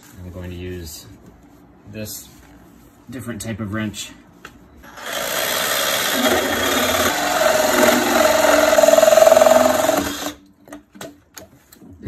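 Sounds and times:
cordless power tool running: 4.9s - 10.4s.

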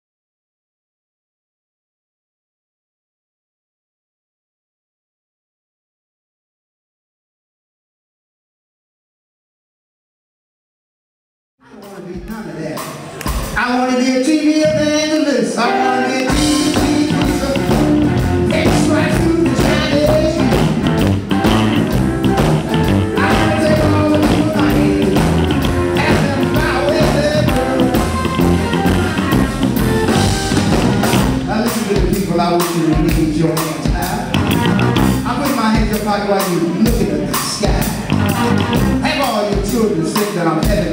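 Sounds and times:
live blues band playing: 12.8s - 40.9s
electric guitar: 15.6s - 31.8s, 33.8s - 35.4s, 36.8s - 39.2s.

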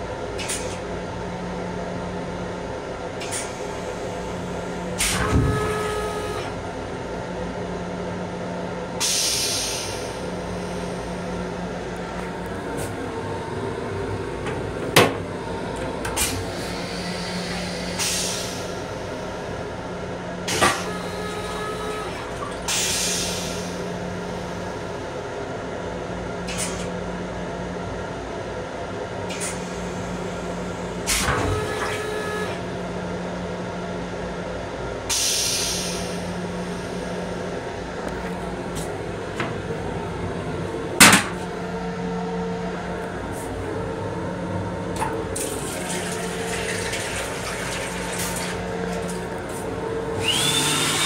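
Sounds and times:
train running rumble: 0.0s - 27.8s, 33.7s - 50.6s
short air hisses: 9.0s - 10.2s, 35.1s - 36.2s.

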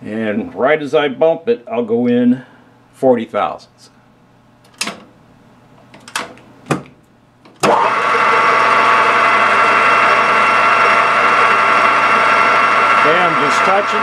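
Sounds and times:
metal lathe running: 7.6s - 14.0s.

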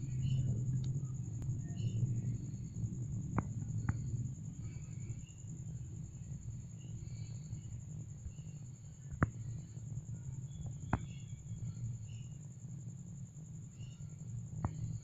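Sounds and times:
low rumble: 0.0s - 10.9s
crickets trilling: 0.0s - 15.0s.

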